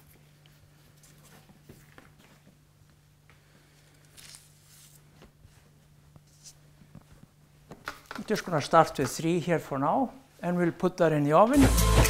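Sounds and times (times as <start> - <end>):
dough rustling and squishing: 3.8 - 7.6.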